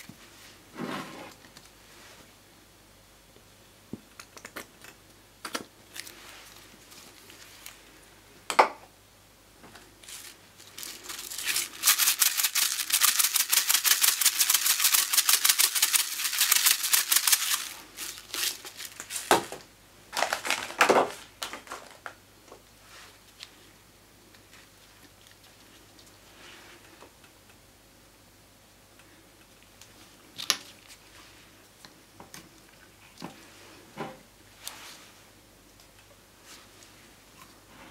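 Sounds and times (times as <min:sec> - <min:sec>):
sprinkles pattering: 0:10.1 - 0:19.3.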